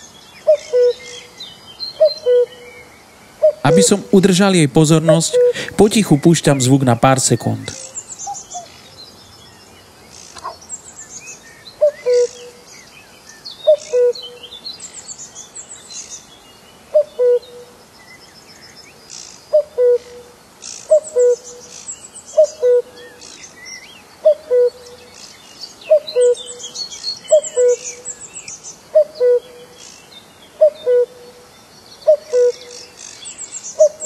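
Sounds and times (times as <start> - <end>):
small birds chirping: 0.0 - 19.9, 20.6 - 34.0
cuckoo calling: 0.5 - 1.3, 2.0 - 2.7, 3.4 - 8.7, 11.8 - 12.6, 13.7 - 14.4, 17.0 - 17.7, 19.5 - 20.2, 20.9 - 21.6, 22.4 - 23.2, 24.2 - 25.0, 25.9 - 26.7, 27.3 - 28.2, 29.0 - 29.7, 30.6 - 31.3, 32.1 - 32.9, 33.8 - 34.0.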